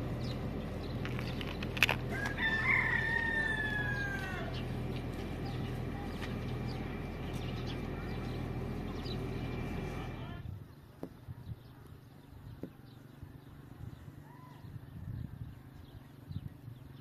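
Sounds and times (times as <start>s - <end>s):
low hum: 0.0s - 16.8s
rooster crowing: 2.1s - 4.9s, 14.2s - 14.8s.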